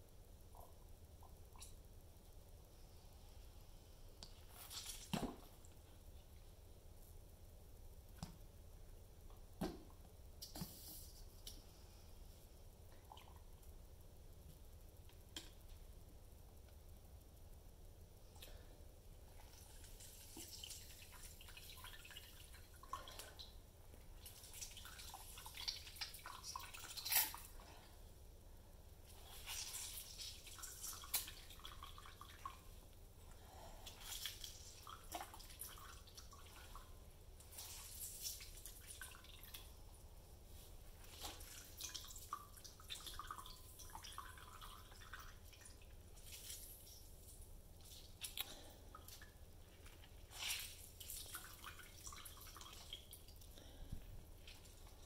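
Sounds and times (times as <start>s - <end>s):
wet crackle of squeezed peel: 25.7s - 27.5s, 46.2s - 51.5s.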